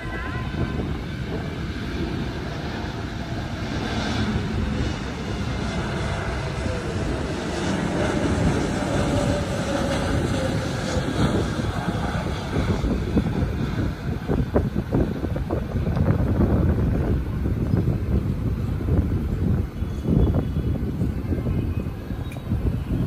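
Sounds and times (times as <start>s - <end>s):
faint engine whine: 0.0s - 23.0s
jet engines rumbling: 0.0s - 23.0s.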